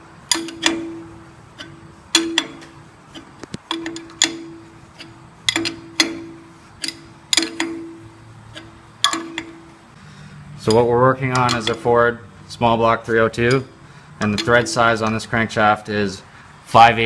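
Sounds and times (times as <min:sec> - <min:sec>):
wrench clinking on a nut: 0:00.3 - 0:09.6, 0:10.6 - 0:11.9, 0:13.4 - 0:15.2.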